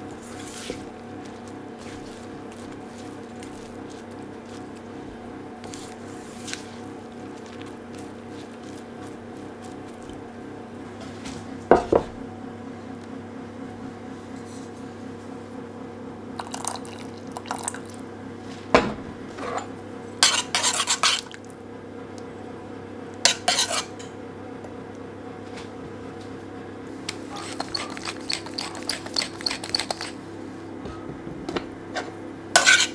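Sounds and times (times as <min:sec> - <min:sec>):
utensils clinking on metal bowl: 0:19.4 - 0:21.4, 0:27.3 - 0:30.2, 0:32.6 - 0:32.9.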